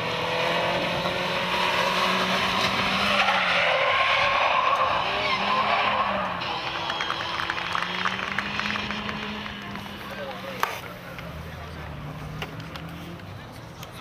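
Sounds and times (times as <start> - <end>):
car engine revving: 0.0 - 10.6
tyres skidding on asphalt: 0.0 - 14.0.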